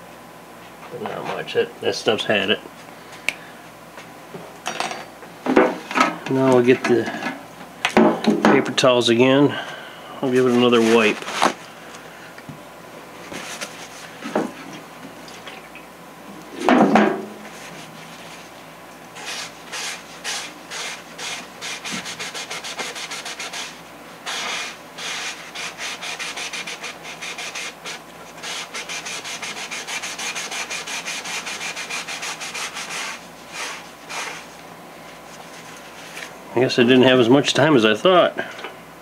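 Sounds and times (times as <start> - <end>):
paper rustle: 10.4 - 11.6
paper towel rubbing foam: 10.4 - 11.6, 19.2 - 34.6.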